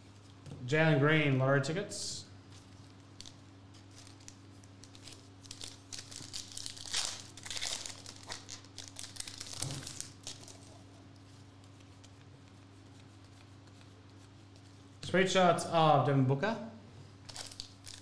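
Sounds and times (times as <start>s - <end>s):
steady low hum: 0.0s - 18.0s
foil wrapper tearing and crinkling: 3.2s - 10.7s, 17.3s - 18.0s.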